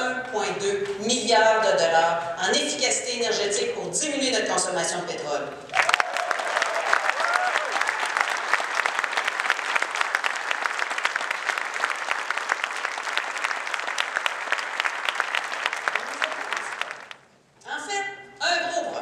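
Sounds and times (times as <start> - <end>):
large audience applauding: 5.7 - 17.2.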